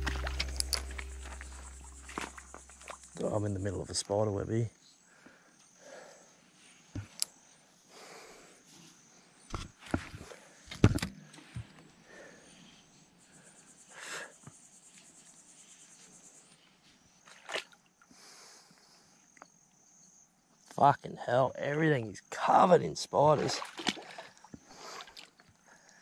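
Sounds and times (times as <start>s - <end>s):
footsteps in scrub: 0.0s - 3.3s
pulsing insect chirp: 0.0s - 9.5s, 11.9s - 17.2s, 18.8s - 20.6s
insects chirring: 0.0s - 26.0s.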